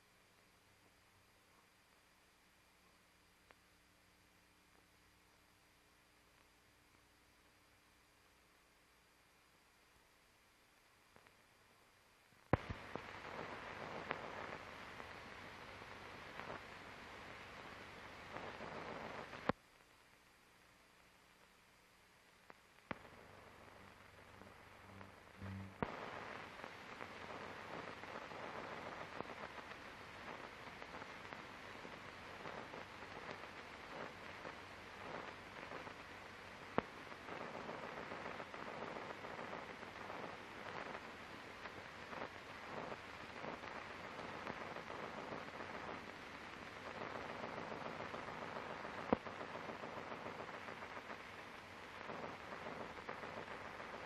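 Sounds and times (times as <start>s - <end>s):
film soundtrack crackling hiss: 0.0s - 54.0s
sharp pops: 12.5s - 13.1s.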